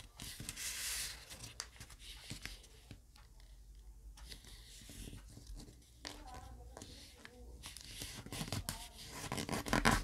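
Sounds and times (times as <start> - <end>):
paper being folded and creased: 6.8 - 10.0.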